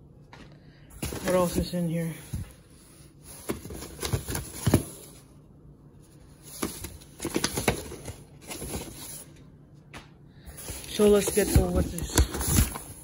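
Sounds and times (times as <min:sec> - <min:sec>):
paper rustling: 0:06.4 - 0:09.4, 0:10.5 - 0:13.0.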